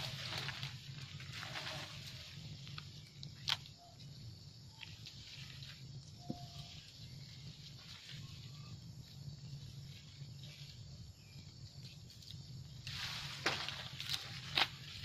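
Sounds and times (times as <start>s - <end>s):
monkeys rustling through leafy branches: 0.0s - 2.9s
steady low hum: 0.0s - 15.0s.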